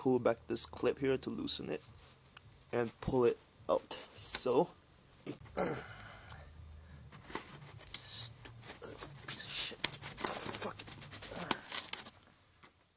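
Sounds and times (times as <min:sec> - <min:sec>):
hose clip clicking and scraping: 0:07.1 - 0:12.2.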